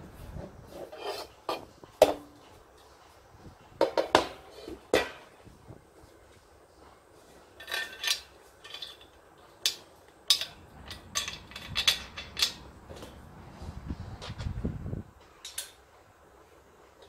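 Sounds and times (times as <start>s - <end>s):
bolts clinking on metal frame: 7.5s - 13.2s, 15.2s - 15.9s.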